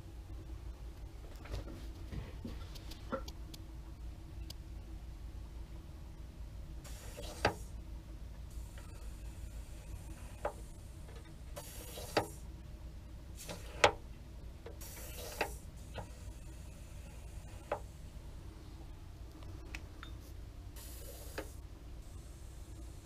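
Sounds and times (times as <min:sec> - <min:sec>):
air hiss bursts: 0:06.8 - 0:07.7, 0:11.5 - 0:12.5, 0:13.4 - 0:14.0, 0:14.8 - 0:17.9, 0:20.8 - 0:21.6.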